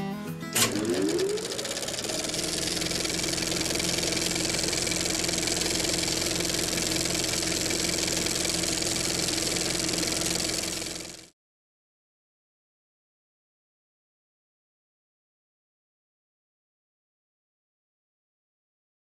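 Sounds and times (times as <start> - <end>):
engine revving: 0.6 - 11.3.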